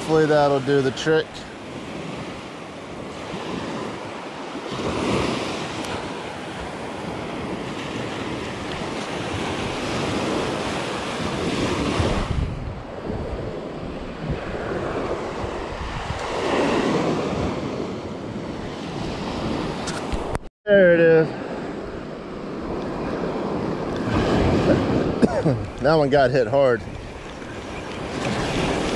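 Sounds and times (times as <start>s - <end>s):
wind rumbling on microphone: 0.0s - 20.5s, 21.5s - 28.9s
surf waves breaking on sand: 0.0s - 28.9s.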